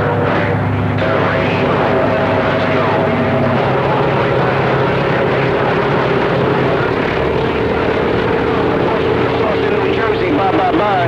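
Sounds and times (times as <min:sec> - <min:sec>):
radio static: 0:00.0 - 0:11.0.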